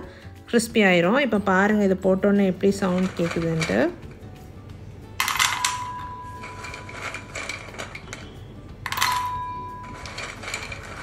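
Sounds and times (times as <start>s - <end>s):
biscuits clattering into metal bowl: 2.7s - 4.3s, 5.2s - 11.0s
metal bowl ringing: 5.2s - 11.0s.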